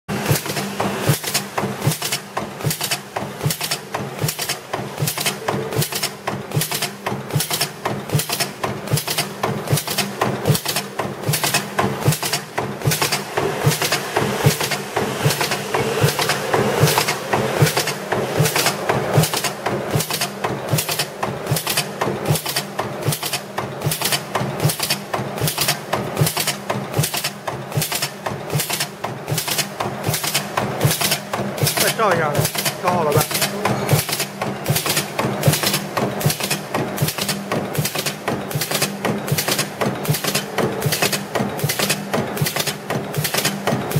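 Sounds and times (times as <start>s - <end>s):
machine clacking strokes: 0.2s - 43.9s
hydraulic unit hum: 11.2s - 24.6s.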